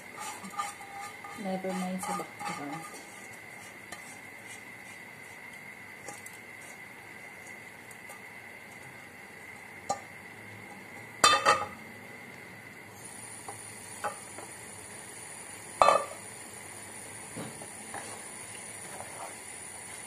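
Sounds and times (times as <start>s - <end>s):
metal cookware clattering: 0.2s - 3.0s, 11.2s - 11.7s, 15.8s - 16.1s.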